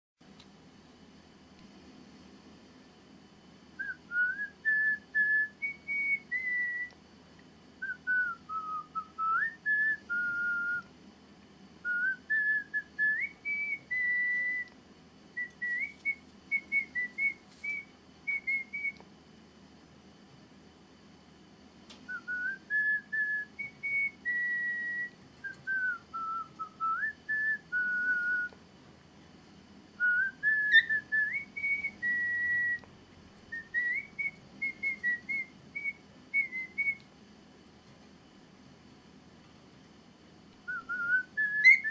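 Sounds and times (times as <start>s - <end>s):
person whistling a tune: 22.1s - 28.5s, 40.7s - 41.9s.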